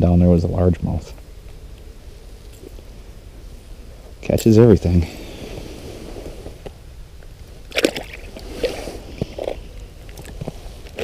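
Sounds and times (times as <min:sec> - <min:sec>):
fish splashing into water: 0:07.7 - 0:08.8
water sloshing: 0:07.7 - 0:11.0.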